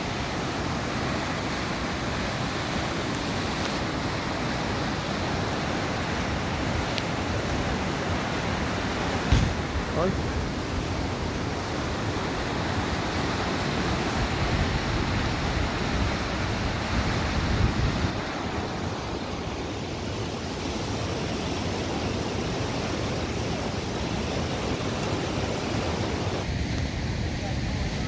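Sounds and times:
white water rushing over rocks: 0:00.0 - 0:28.0
wind on microphone: 0:13.0 - 0:19.6.

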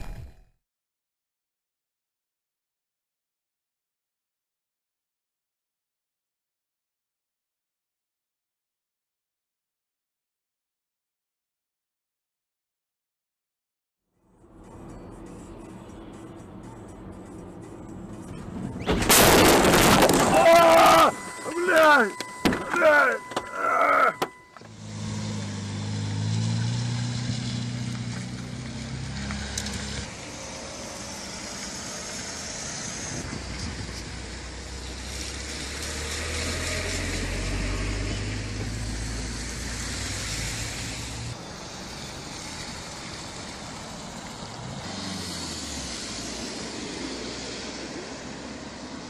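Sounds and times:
highway traffic noise: 0:14.1 - 0:49.0.

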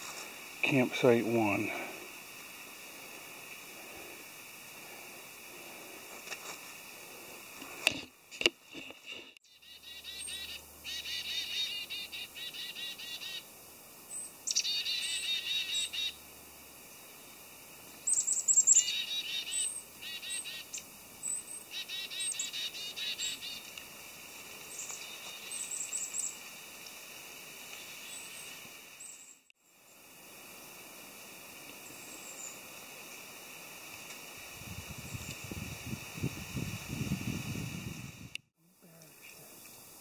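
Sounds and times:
birds chirping trills: 0:09.4 - 0:13.5, 0:14.1 - 0:16.3, 0:18.0 - 0:23.7.

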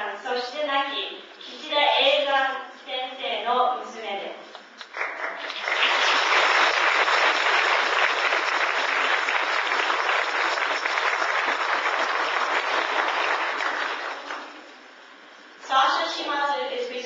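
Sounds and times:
audience applauding: 0:04.9 - 0:14.6.

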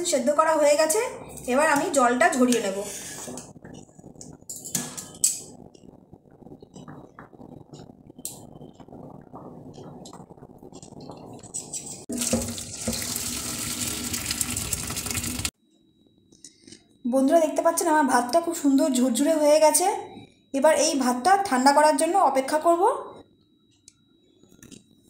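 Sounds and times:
water pouring into a sink: 0:12.1 - 0:15.5.

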